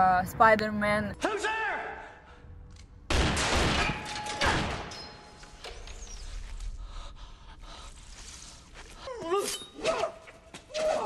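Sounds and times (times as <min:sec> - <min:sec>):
loud echoing gunshot blast: 0:03.1 - 0:04.9.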